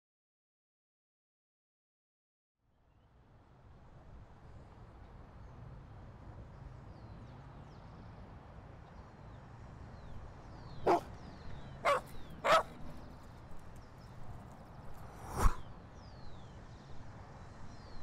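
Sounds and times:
faint outdoor background: 2.6 - 18.0
dog barking: 10.8 - 11.2, 11.8 - 13.0.

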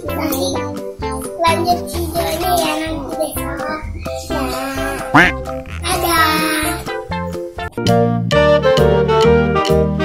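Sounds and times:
repeating bass line: 5.1 - 6.0.

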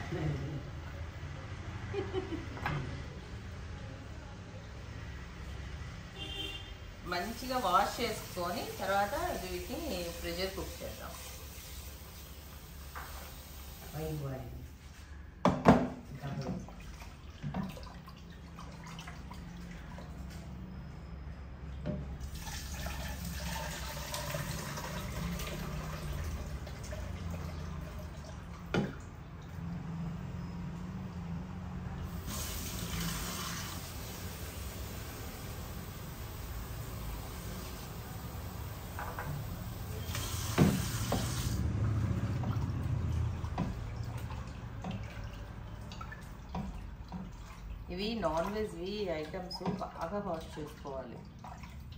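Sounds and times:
tap water running into pot: 7.6 - 14.0, 21.8 - 29.2, 32.1 - 50.6
water sloshing: 16.0 - 20.7, 41.6 - 51.9.

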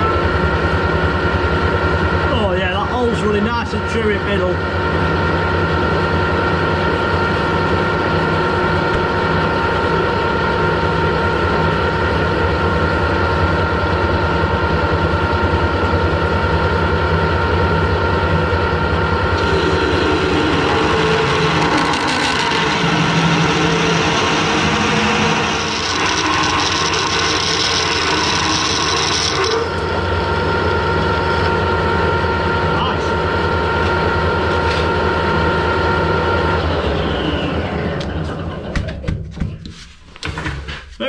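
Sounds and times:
lathe motor humming: 0.0 - 38.8
drill cutting steel: 19.4 - 30.2.

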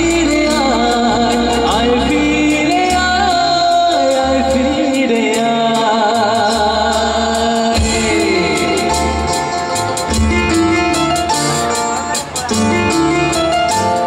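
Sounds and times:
man singing into microphone: 0.0 - 10.2
drums with cymbal beat: 0.0 - 14.0
live band playing: 0.0 - 14.0.

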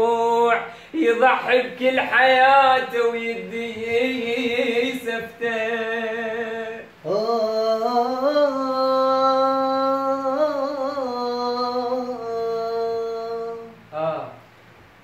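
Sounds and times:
man singing unaccompanied: 0.0 - 14.6
man breathing: 0.7 - 1.0.

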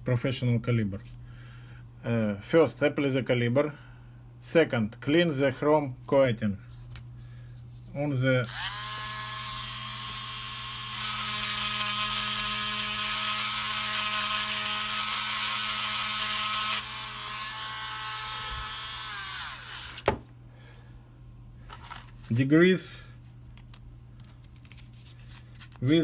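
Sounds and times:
rotary tool grinding metal: 8.5 - 20.0.

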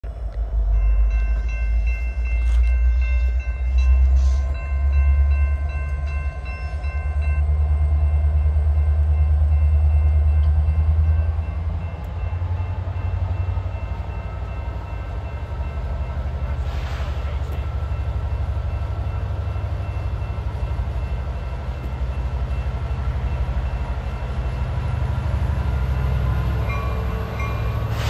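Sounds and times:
diesel locomotive engine rumble: 0.0 - 28.0.

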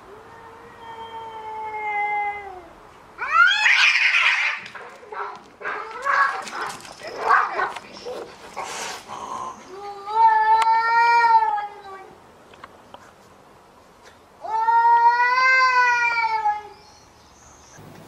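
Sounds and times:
cats yowling and screeching: 0.1 - 7.7, 14.4 - 16.8.

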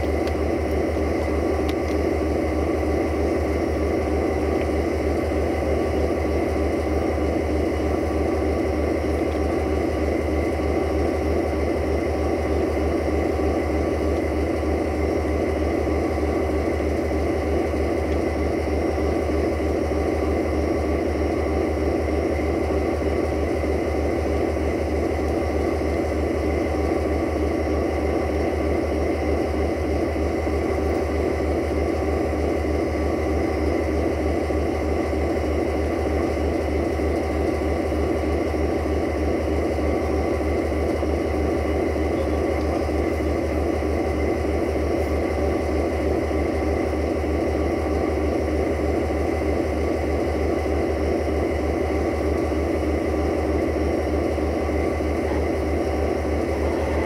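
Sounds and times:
diesel train engine idling: 0.0 - 57.0.

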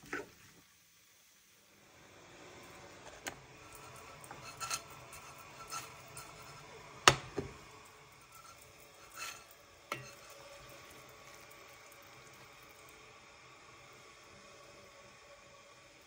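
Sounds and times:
cookware clinking on glass hob: 3.6 - 11.9.

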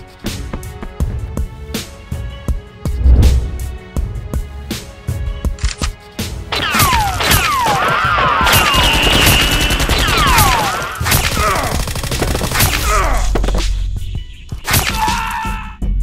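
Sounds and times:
rapid automatic gunfire: 8.5 - 12.8.

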